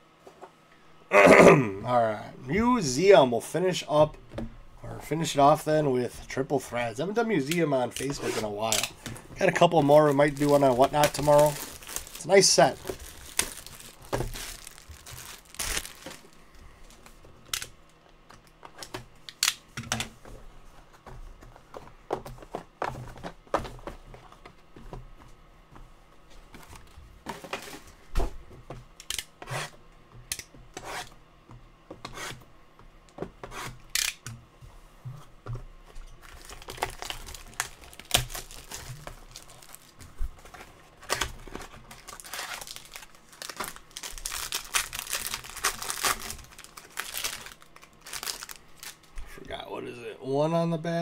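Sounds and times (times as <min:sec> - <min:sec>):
wrappers tearing and crinkling: 0:07.4 - 0:17.8, 0:36.2 - 0:49.2.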